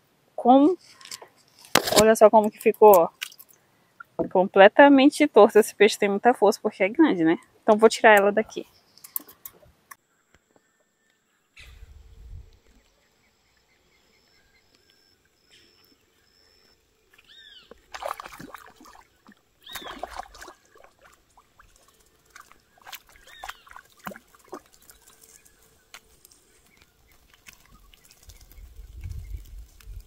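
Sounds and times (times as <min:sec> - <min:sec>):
arched animal calls: 0:22.5 - 0:25.7.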